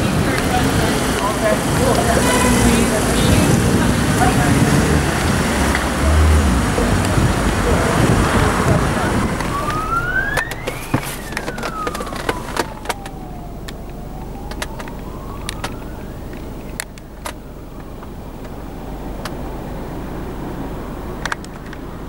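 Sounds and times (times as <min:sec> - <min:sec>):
emergency vehicle siren wailing: 0:00.0 - 0:22.0
road traffic noise: 0:00.0 - 0:22.0
sharp clicks: 0:09.4 - 0:18.6, 0:21.2 - 0:21.8.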